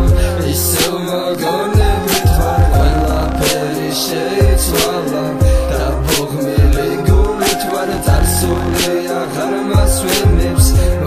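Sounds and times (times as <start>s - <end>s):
held melody notes: 0.0s - 11.0s
deep sliding bass kicks: 1.8s - 3.6s, 4.4s - 4.8s, 5.4s - 8.9s.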